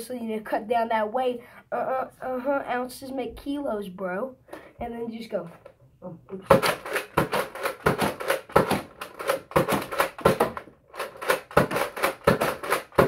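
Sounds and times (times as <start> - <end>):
toy blaster clacking and firing: 6.5 - 13.0.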